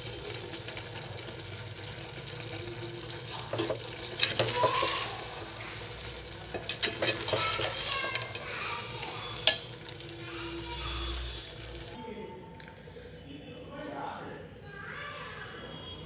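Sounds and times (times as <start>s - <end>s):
food sizzling: 0.0s - 12.0s
spoon scraping metal pot: 3.3s - 10.0s
spoon clinking on pot: 3.5s - 5.5s, 6.5s - 10.0s.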